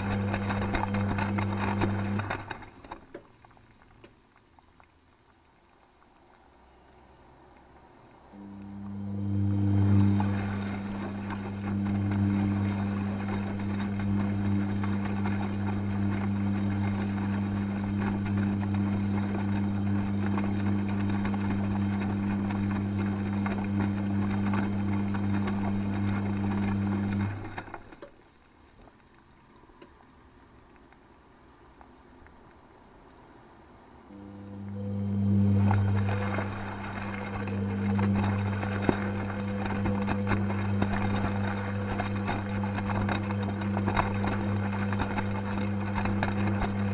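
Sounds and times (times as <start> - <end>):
washing machine motor hum: 0.0 - 3.2, 8.0 - 28.1, 34.1 - 46.9
water churning in drum: 0.0 - 31.0, 34.1 - 46.9.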